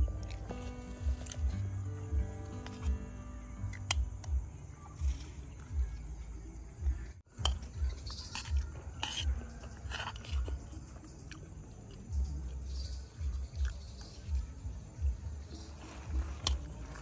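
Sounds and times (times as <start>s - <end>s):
chewing food: 0.0s - 1.7s, 7.5s - 14.5s
metal spoon on ceramic plate: 7.4s - 10.5s.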